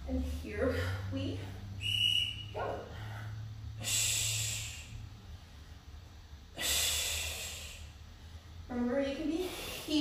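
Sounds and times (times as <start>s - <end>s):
woman breathing out forcefully: 2.9s - 5.0s.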